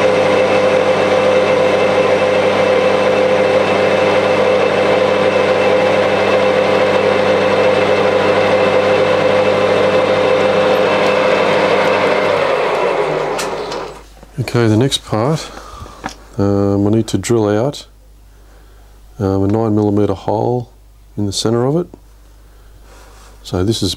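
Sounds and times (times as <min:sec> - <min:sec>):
metal lathe humming: 0:00.0 - 0:14.1.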